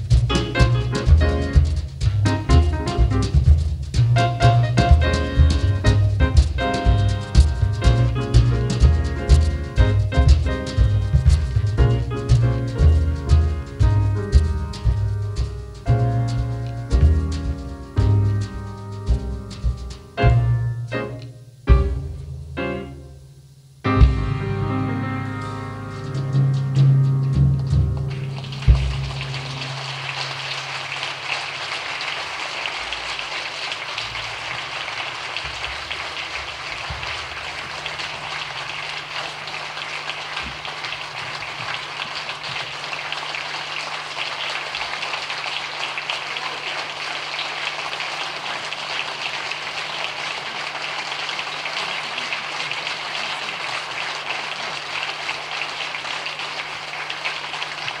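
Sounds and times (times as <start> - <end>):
audience applauding: 4.2 - 14.8, 28.0 - 58.0.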